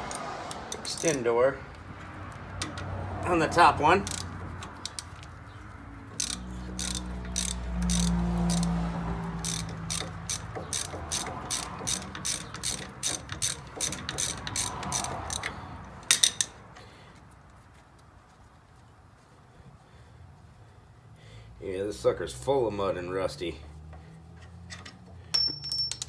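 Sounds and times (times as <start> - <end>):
ratchet wrench clicking: 0.1 - 1.3, 3.9 - 5.4, 6.1 - 16.6.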